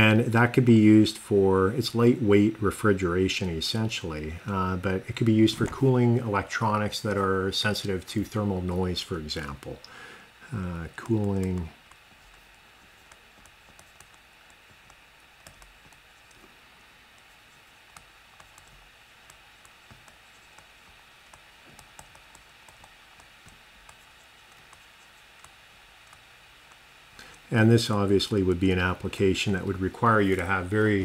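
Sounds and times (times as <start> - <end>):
steady low hiss: 0.0 - 31.0
stylus tapping on tablet screen: 11.4 - 16.5, 17.1 - 26.8.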